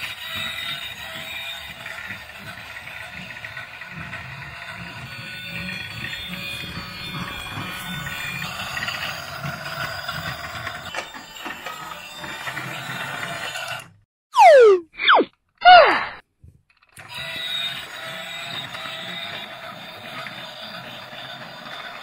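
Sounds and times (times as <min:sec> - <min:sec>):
toy train motor whirring: 0:00.0 - 0:14.0, 0:16.7 - 0:22.0
wheels rattling over plastic track: 0:00.0 - 0:14.0, 0:16.7 - 0:22.0
sharply falling tone: 0:14.4 - 0:16.2.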